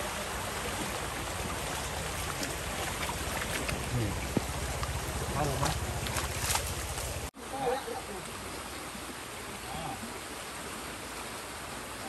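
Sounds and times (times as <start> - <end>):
faint knocks and splashes: 0.0 - 7.3
fast-flowing stream water: 0.0 - 12.0.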